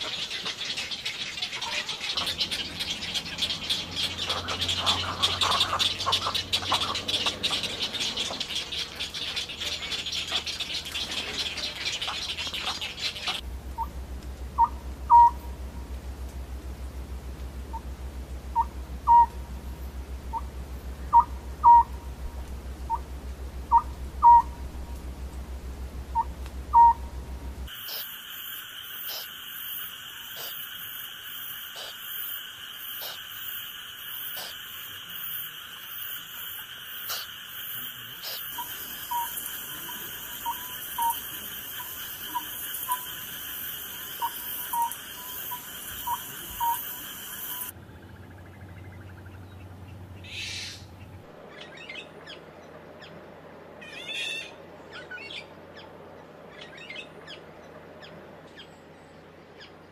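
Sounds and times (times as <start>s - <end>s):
chicks chattering: 0.0s - 13.9s, 38.2s - 47.7s
owl hooting: 0.0s - 15.9s, 17.7s - 17.9s, 18.5s - 25.1s, 26.1s - 49.4s, 50.2s - 52.4s, 53.8s - 55.5s
low hum: 2.2s - 27.7s
high-pitched night chorus: 26.1s - 47.7s.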